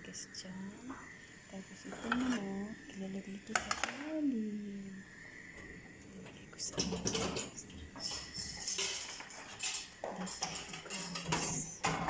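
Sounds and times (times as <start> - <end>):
metal kitchenware clattering: 6.6 - 12.0.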